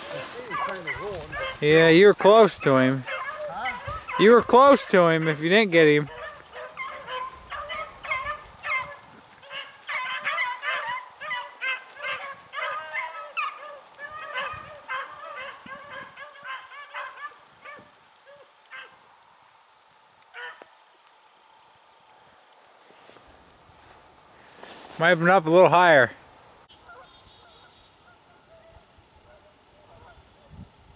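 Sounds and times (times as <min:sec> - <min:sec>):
dogs baying: 0:00.0 - 0:19.0.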